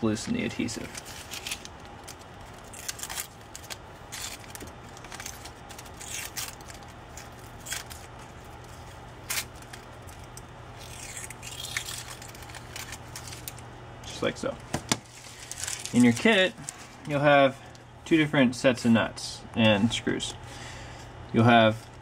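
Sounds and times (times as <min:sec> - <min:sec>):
paper backing peeling: 0:00.1 - 0:17.2
scratchy rips and rustles: 0:00.5 - 0:13.6, 0:15.0 - 0:17.1.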